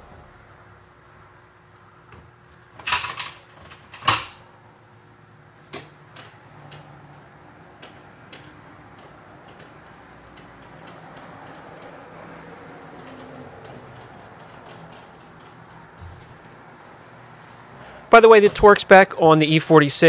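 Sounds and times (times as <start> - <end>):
parts clattering: 2.7 - 4.5.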